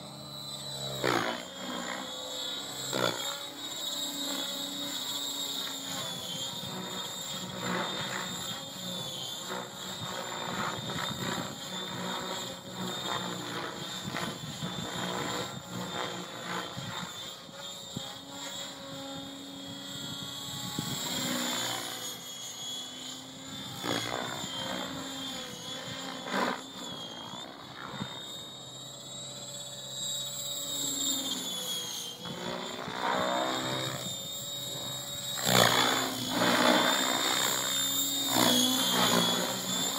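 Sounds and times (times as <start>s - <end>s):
rc helicopter motor whine: 0.0s - 39.9s
rotor blades whooshing: 30.7s - 39.9s.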